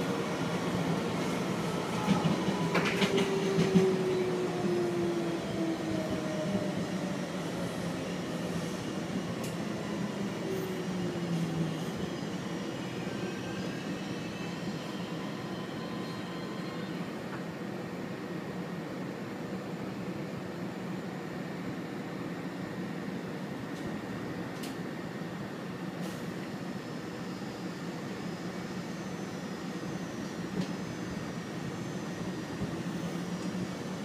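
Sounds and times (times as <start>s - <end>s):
train wheels rumbling: 0.0s - 7.6s.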